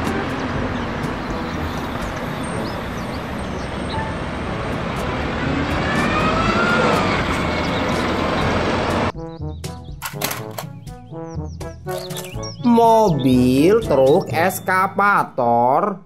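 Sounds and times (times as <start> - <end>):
bus engine and tyre noise: 0.0 - 9.2, 11.9 - 12.6.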